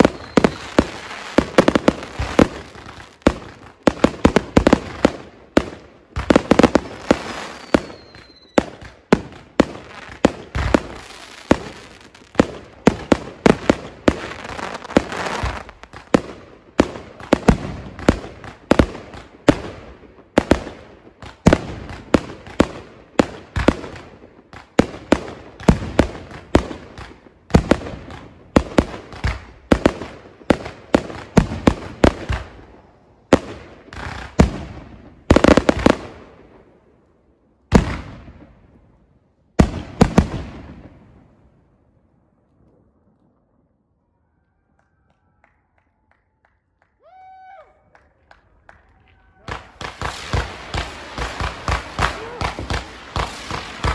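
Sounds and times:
falling firework whistle: 0.0 - 0.9, 7.4 - 8.7
fireworks banging: 0.0 - 19.7, 49.4 - 53.9
fireworks crackling: 0.0 - 19.7, 48.3 - 53.9.

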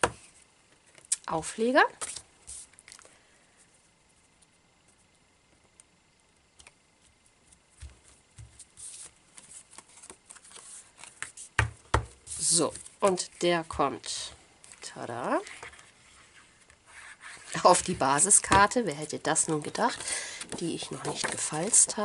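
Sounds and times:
paper rustling: 7.0 - 11.6.

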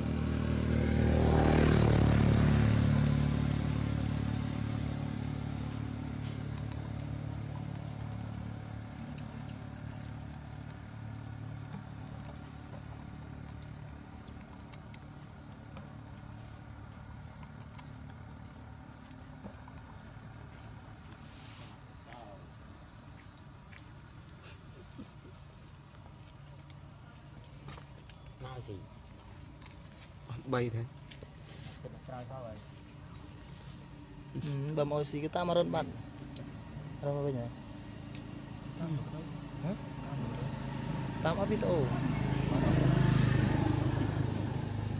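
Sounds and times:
low engine rumble: 0.0 - 17.1, 29.6 - 44.9
insect chorus: 0.0 - 44.9.

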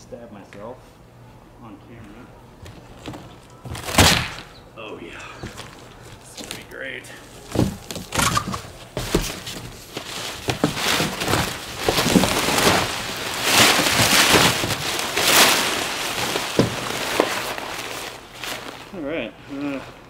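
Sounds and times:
plastic sheeting crinkling: 5.4 - 20.0
cardboard knocks: 7.5 - 9.8, 10.4 - 12.9, 16.5 - 17.4.

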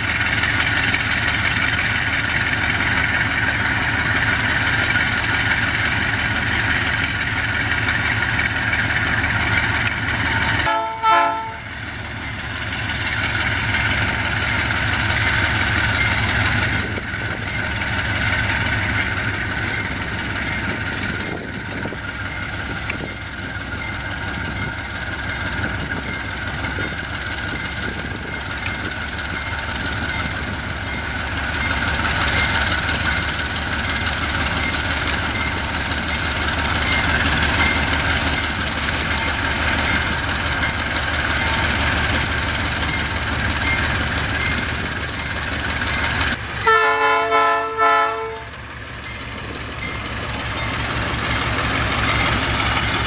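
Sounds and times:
diesel locomotive running: 0.0 - 53.0
train horn blast: 10.6 - 11.6, 46.6 - 48.5.

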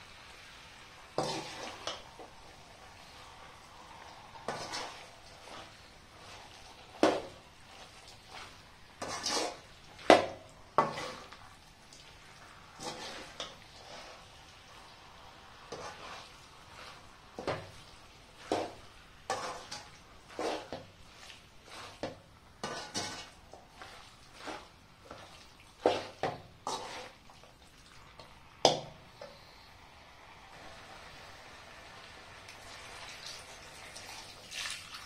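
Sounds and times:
metal spoon stirring in pot: 4.4 - 12.1, 12.7 - 14.4, 15.7 - 27.5
spoon scraping pot: 4.5 - 11.4, 12.8 - 14.2, 15.7 - 17.7, 18.4 - 27.2.

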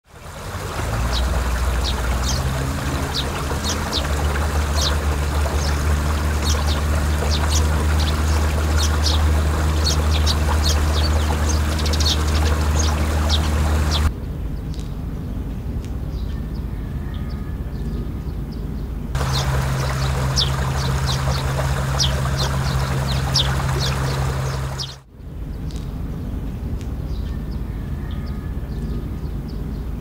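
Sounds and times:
water pouring and trickling: 0.0 - 14.1, 19.2 - 25.1
loud low engine hum: 0.1 - 14.1, 19.2 - 25.0
high bird chirps: 1.1 - 14.1.

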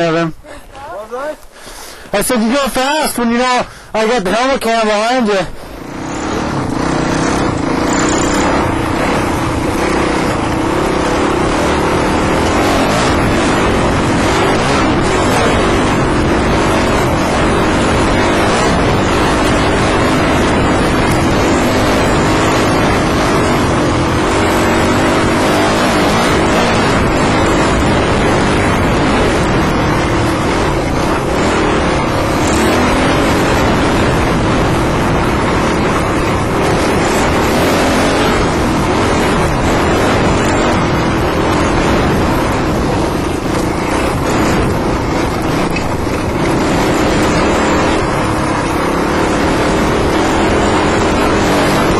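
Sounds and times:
dirt bike engine revving: 2.3 - 51.9.

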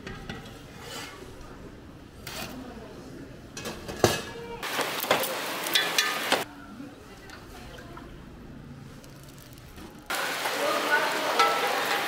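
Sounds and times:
pots and utensils clattering: 3.6 - 6.4, 11.3 - 12.0.

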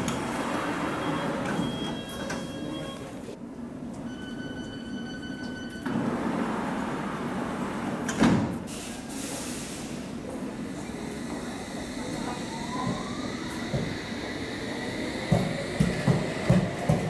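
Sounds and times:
platform and train hum: 0.0 - 17.0
door warning tone: 0.8 - 3.2, 4.0 - 6.0
sliding doors shutting with thud: 5.8 - 8.8.

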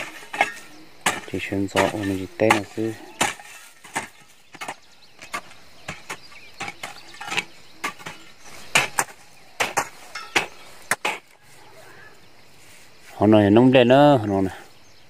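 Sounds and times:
hoes chopping into dry earth: 0.0 - 11.5.

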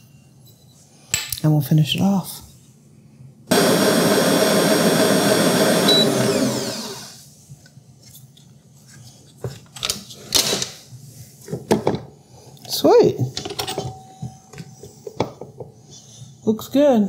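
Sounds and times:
stand mixer motor whine: 3.5 - 7.2.

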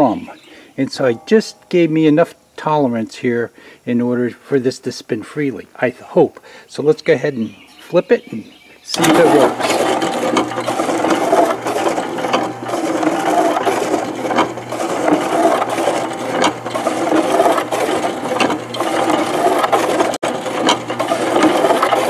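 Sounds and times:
cement mixer motor hum: 8.9 - 22.0
gears clattering and ticking: 8.9 - 22.0.

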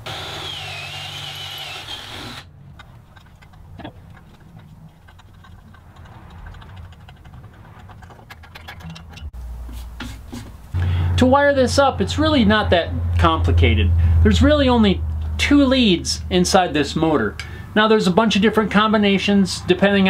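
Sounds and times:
cordless drill whining: 0.0 - 2.5
tap wrench ticking and scraping: 1.6 - 9.3.

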